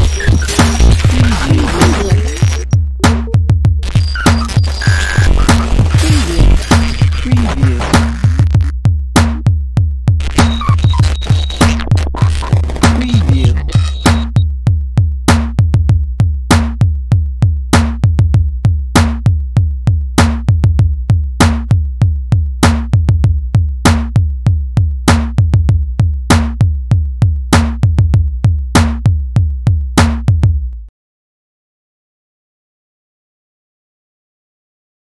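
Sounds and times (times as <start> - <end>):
deep bass drone: 0.0 - 8.7, 10.2 - 14.4
electronic drum beat: 0.0 - 30.6.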